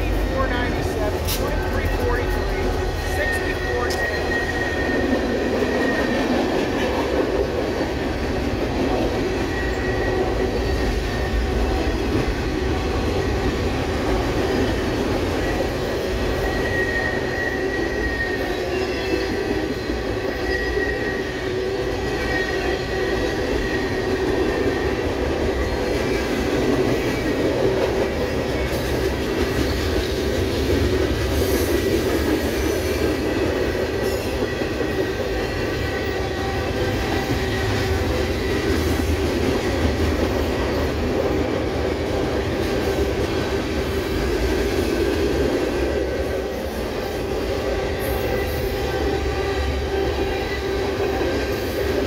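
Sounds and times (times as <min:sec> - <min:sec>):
steel wheels rumbling on rail: 0:00.0 - 0:52.0
high wheel squeal: 0:01.6 - 0:06.3, 0:15.4 - 0:24.1.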